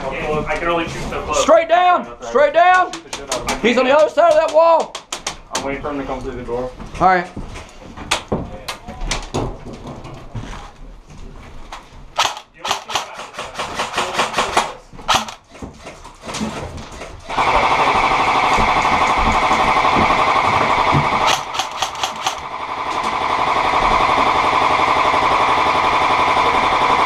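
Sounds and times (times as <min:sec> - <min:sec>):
airsoft rifles firing: 0:12.2 - 0:15.5, 0:17.3 - 0:23.4.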